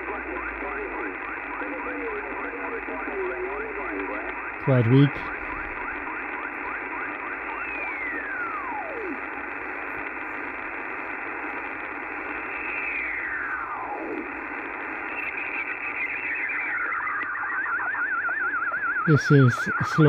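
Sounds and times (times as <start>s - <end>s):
radio receiver band noise hiss: 0.0s - 20.0s
warbling radio signal: 0.0s - 20.0s
falling tuning whistle: 16.2s - 19.1s.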